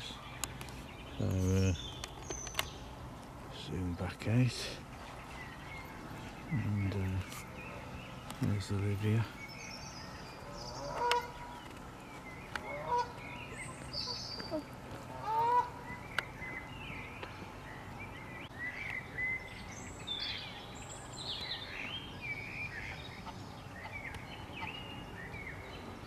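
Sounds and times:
songbirds chirping: 0.0s - 26.0s
goose honk: 12.7s - 13.2s, 15.2s - 15.8s.

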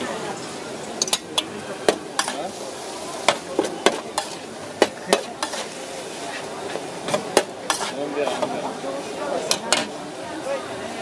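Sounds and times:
stir-fry sizzling: 0.0s - 11.0s
metal spatula scraping steel pan: 3.3s - 8.6s.

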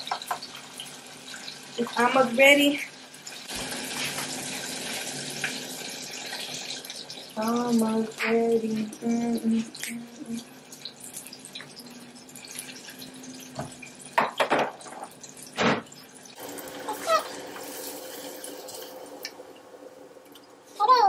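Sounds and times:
sharp kitchen clatters: 14.2s - 16.0s.

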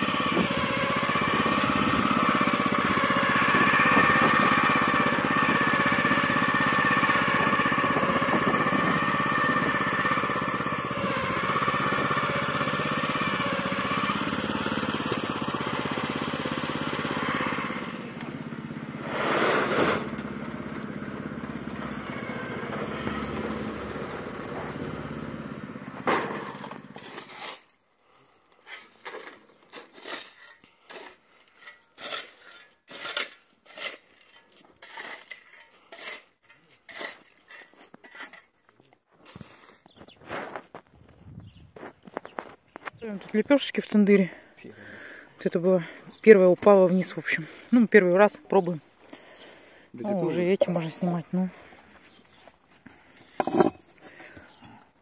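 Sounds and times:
small petrol engine running: 0.0s - 27.2s.

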